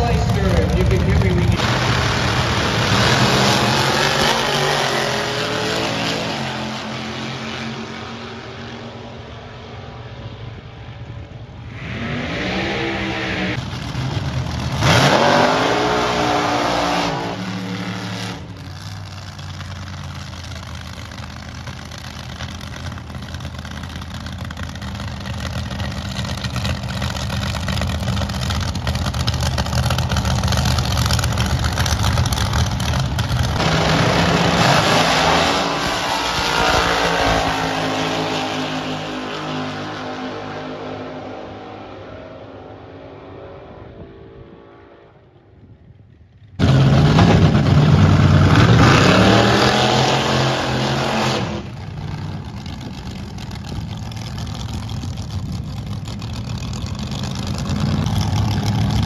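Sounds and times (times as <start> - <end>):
dragster engines idling: 0.0 - 5.3, 13.5 - 14.8, 17.4 - 34.5, 51.7 - 59.0
dragster engine revving: 0.0 - 8.9, 11.6 - 42.2, 46.4 - 59.0
dragster engines running: 0.0 - 11.7, 12.6 - 39.5, 51.5 - 59.0.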